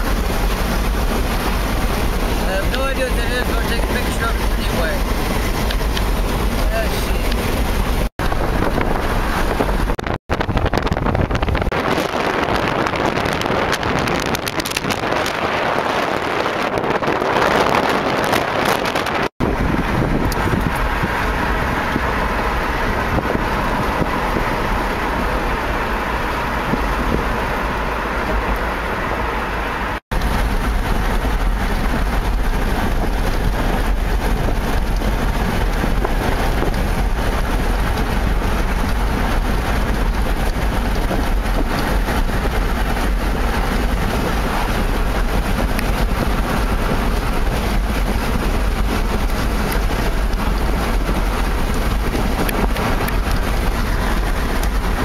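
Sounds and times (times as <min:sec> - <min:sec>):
car road and wind noise: 0:00.0 - 0:55.0
wind buffeting microphone: 0:00.0 - 0:55.0.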